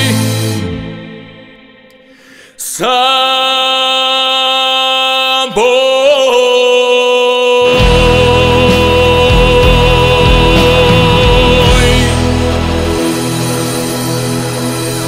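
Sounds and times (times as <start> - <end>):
man singing unaccompanied: 0.0 - 1.1, 2.6 - 12.7
pop-rock band playing: 0.0 - 1.9, 7.7 - 15.0.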